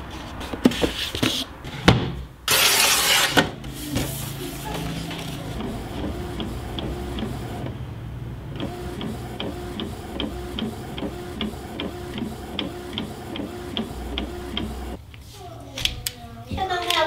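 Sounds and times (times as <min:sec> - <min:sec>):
inkjet printer printing: 0:02.5 - 0:07.8, 0:08.5 - 0:15.0.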